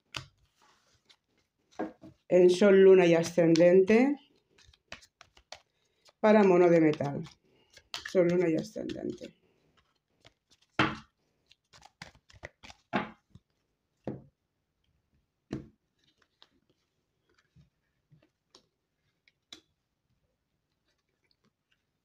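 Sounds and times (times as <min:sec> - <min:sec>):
cards being shuffled: 0:00.1 - 0:01.9, 0:03.2 - 0:13.6, 0:16.0 - 0:17.6.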